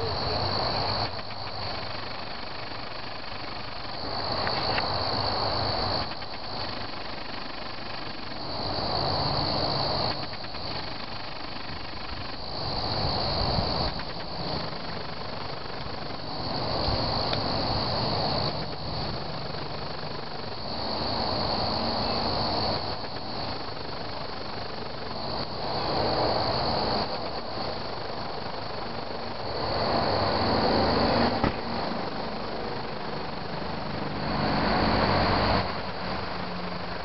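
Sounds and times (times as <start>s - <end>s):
crickets chirping: 0.0s - 37.0s
loud rushing noise: 33.9s - 37.0s.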